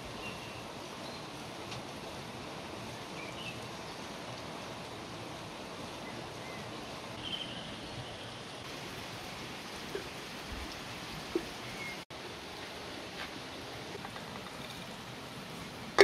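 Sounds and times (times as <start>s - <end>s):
running water: 0.0s - 16.0s
faint bird chirps: 6.1s - 8.2s.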